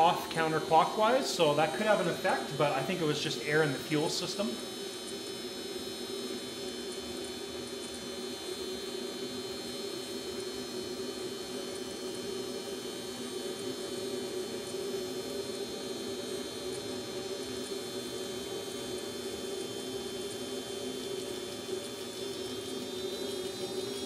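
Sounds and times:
faint high whine: 0.0 - 5.4
steady machine hum: 0.0 - 24.0.

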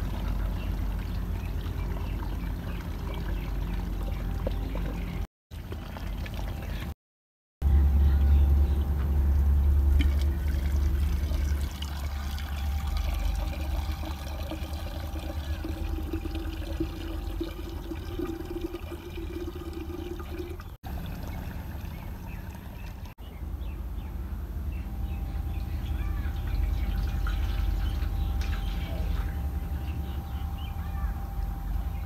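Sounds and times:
water pouring into clay pot: 10.0 - 23.2.

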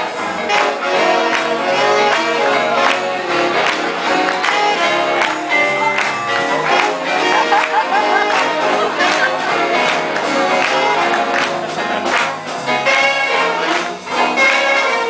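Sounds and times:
big band horns: 0.0 - 15.0
drum beat: 2.9 - 14.2.

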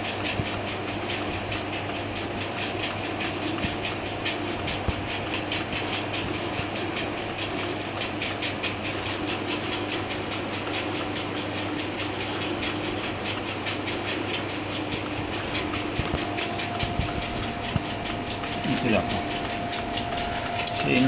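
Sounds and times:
gears ticking: 0.2 - 21.0
electric motor humming: 4.8 - 21.0.

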